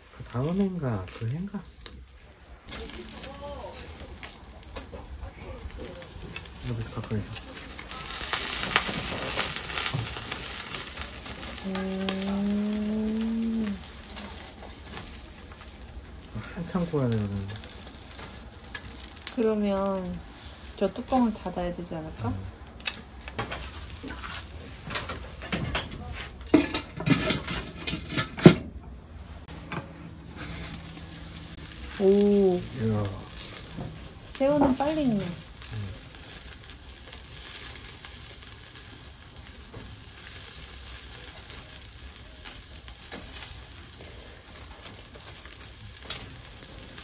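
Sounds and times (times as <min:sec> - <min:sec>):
meat sizzling on a grill: 0:00.0 - 0:47.0
cooking utensils clicking and knocking: 0:22.6 - 0:30.8.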